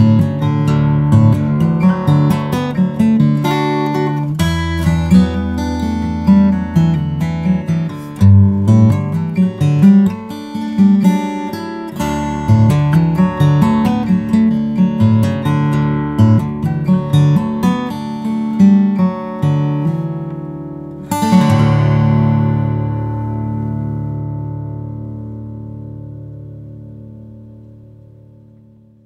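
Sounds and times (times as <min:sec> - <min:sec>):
acoustic guitar fingerpicked: 0:00.0 - 0:29.0
guitar chord strummed: 0:19.4 - 0:29.0.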